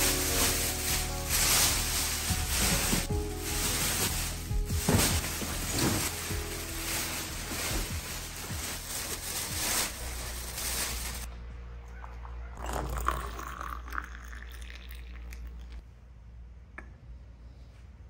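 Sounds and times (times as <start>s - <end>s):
plastic garbage bag crinkling: 0.0s - 11.3s
water pouring into mug: 12.6s - 15.7s.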